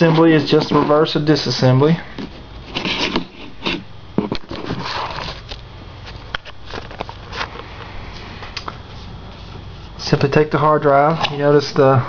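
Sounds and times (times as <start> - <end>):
metal caddy handling scrapes: 0.0 - 1.3, 2.2 - 5.5.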